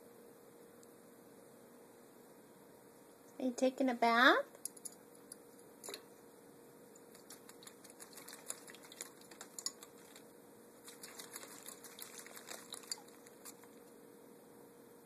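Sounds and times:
bird splashing in water: 7.2 - 13.8.

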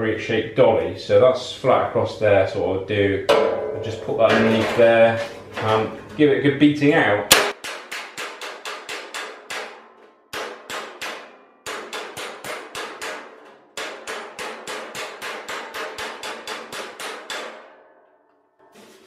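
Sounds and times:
hammer ringing on steel sheet: 3.3 - 6.0, 7.3 - 17.9.

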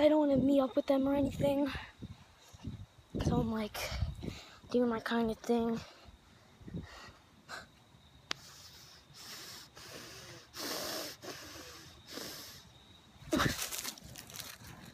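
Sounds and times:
person breathing heavily: 8.4 - 12.7.

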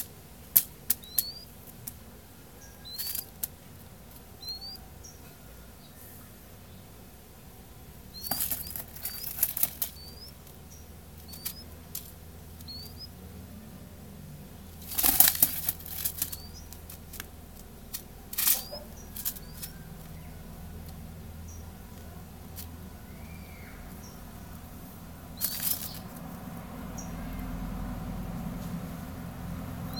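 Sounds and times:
high rising chirps: 8.1 - 10.4, 11.2 - 11.7, 12.6 - 13.2
dove wings flapping on paper: 8.2 - 10.6, 14.8 - 19.8, 25.4 - 26.2.

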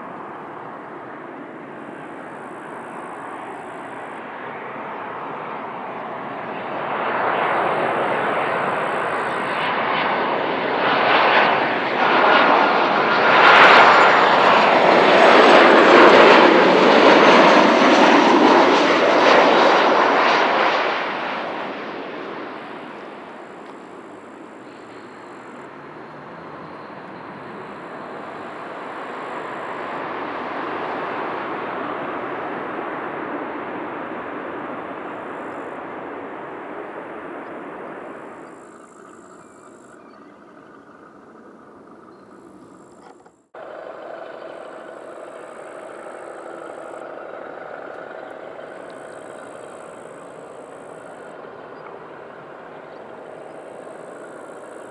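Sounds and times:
jet engine rush and whine: 0.0 - 54.9
steady engine noise: 7.5 - 9.8, 22.6 - 33.1, 37.8 - 54.9.

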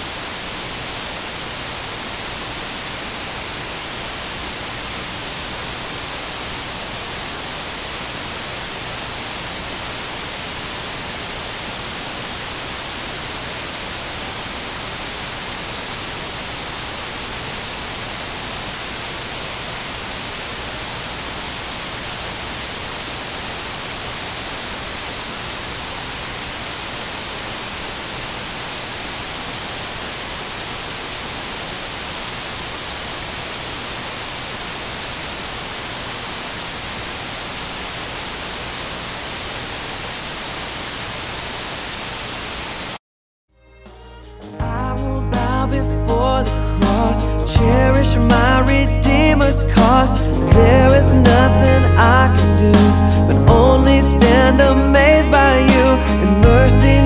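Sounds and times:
electronic static hiss: 0.0 - 43.0.

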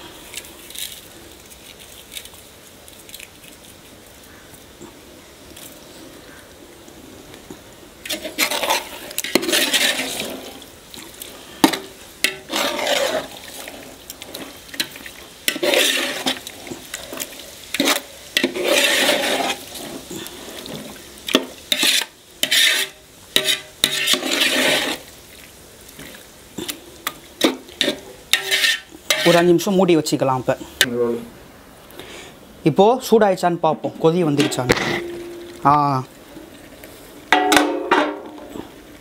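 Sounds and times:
ladle scraping in a pot: 8.0 - 25.1, 26.0 - 29.6, 34.4 - 35.6.

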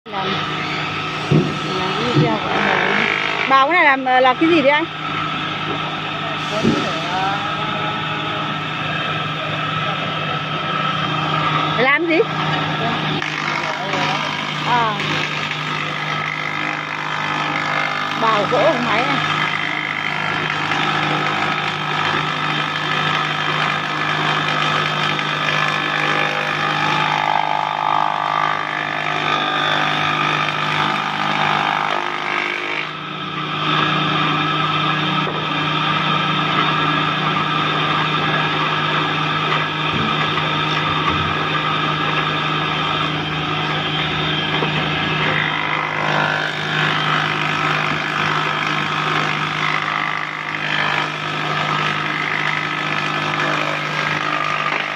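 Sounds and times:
electric wood planer running: 0.0 - 54.9.

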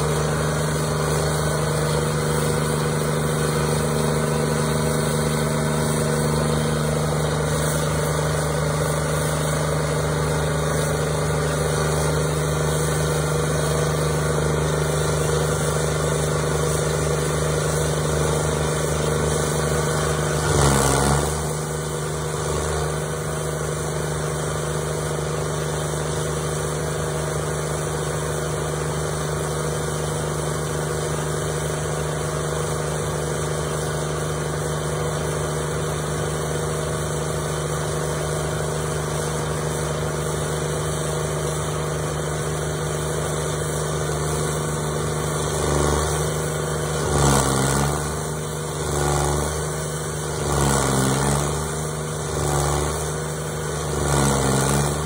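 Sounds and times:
stump grinder engine running: 0.0 - 55.0.

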